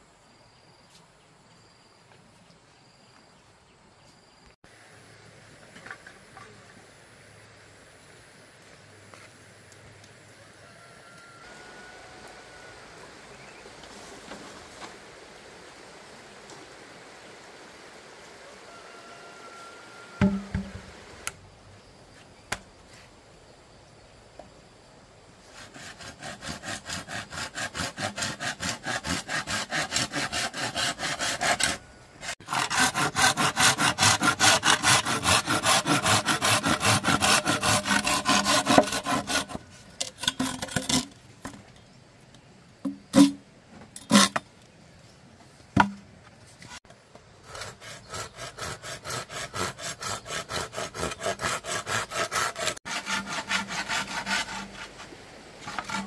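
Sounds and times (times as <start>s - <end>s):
hand saw cutting bamboo: 20.2s - 20.8s, 25.5s - 41.2s, 44.0s - 44.4s, 47.4s - 56.0s
sharp knocks: 20.2s - 20.9s.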